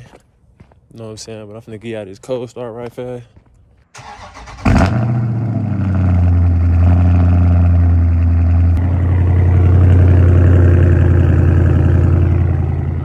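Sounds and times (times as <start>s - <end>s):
car engine idling: 4.0s - 13.0s.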